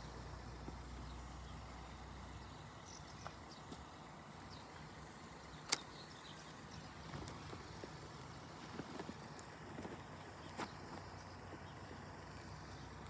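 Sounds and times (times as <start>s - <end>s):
steady high-pitched hiss: 0.0s - 13.0s
sharp click: 5.6s - 6.0s.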